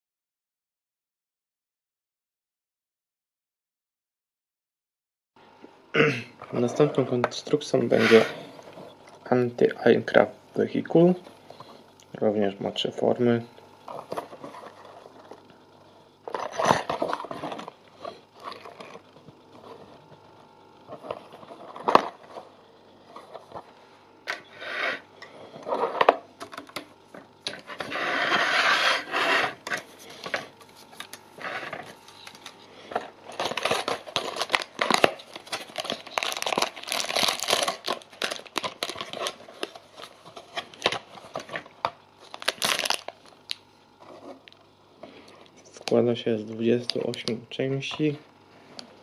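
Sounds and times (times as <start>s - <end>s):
packaging tearing and crinkling: 16.3s - 17.8s, 30.1s - 32.6s, 33.2s - 43.6s.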